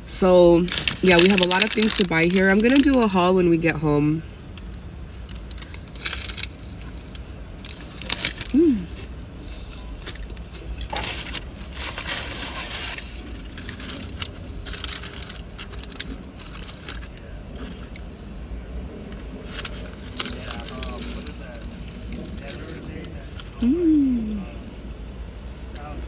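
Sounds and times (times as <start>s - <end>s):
paper wrapper crinkling: 0.6s - 3.2s, 5.2s - 8.6s, 10.0s - 18.0s, 19.2s - 23.6s
person humming: 23.6s - 24.5s.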